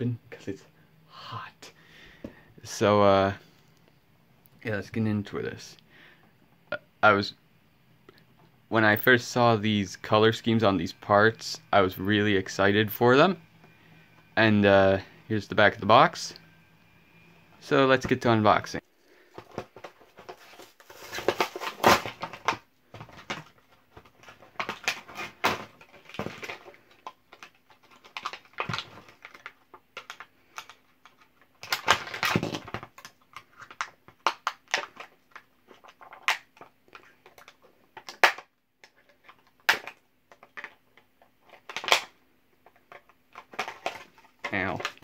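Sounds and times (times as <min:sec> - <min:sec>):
plastic wrap crinkling: 0:19.2 - 0:22.6
cardboard tearing: 0:20.3 - 0:22.4.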